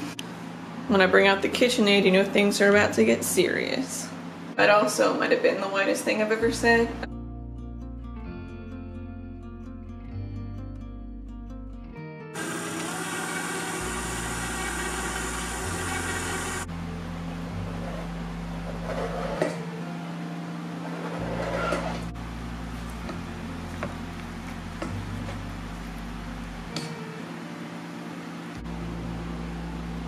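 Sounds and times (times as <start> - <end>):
stand mixer motor running: 12.4 - 16.7
scraping on cutting board: 18.7 - 19.6, 20.9 - 22.1.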